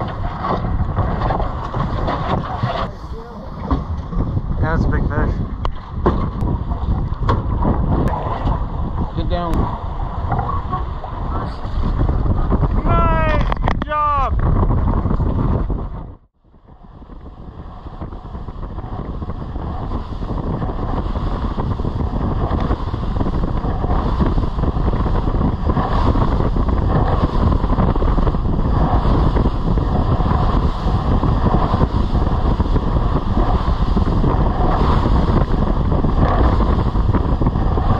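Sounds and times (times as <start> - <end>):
boat engine: 0.0 - 37.9
water noise: 0.0 - 37.9
wind buffeting microphone: 0.0 - 37.9.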